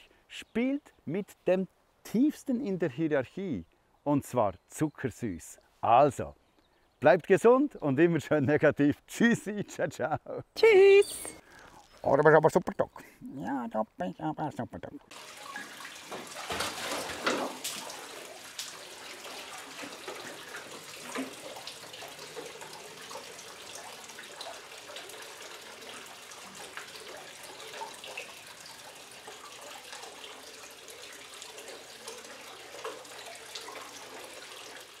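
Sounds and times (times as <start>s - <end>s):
dog splashing in water: 15.1s - 22.5s
tap water running into bucket: 15.1s - 35.0s.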